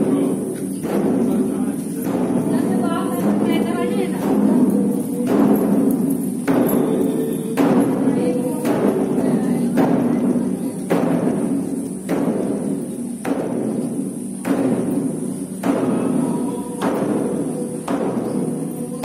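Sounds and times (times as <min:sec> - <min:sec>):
voices chanting: 0:00.0 - 0:10.0, 0:15.0 - 0:19.0
large drum beaten slowly: 0:00.0 - 0:19.0.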